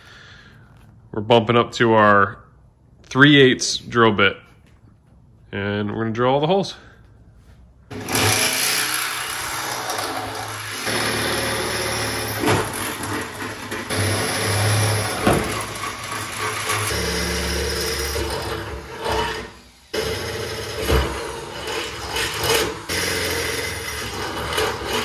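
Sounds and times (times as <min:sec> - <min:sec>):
electric drill boring through steel: 0:07.9 - 0:25.0.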